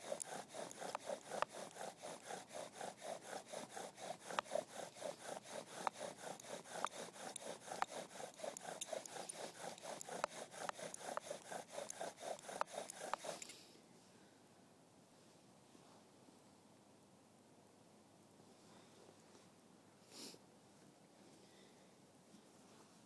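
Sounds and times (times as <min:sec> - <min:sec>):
spindle grinding in wood: 0:00.0 - 0:13.5.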